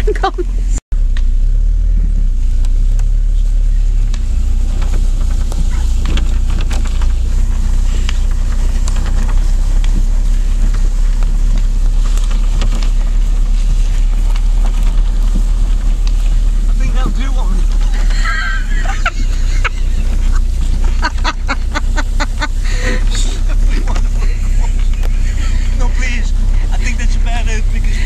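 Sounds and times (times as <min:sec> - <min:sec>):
canoe dragged across grass: 0:03.4 - 0:28.0
small clicks and rattles: 0:04.1 - 0:18.3.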